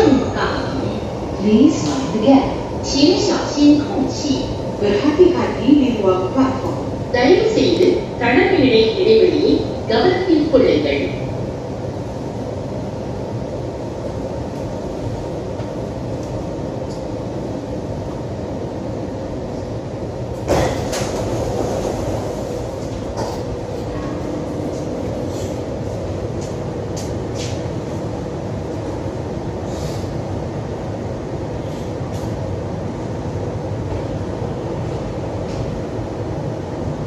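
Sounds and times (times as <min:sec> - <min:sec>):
metro car rumble and hum: 0:00.0 - 0:37.0.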